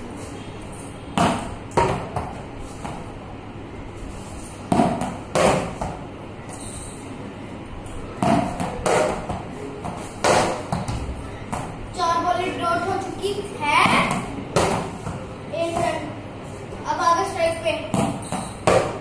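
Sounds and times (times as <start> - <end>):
bat hitting tennis ball: 1.2 - 3.1, 4.6 - 6.0, 8.2 - 11.7, 13.8 - 15.8, 17.9 - 19.0.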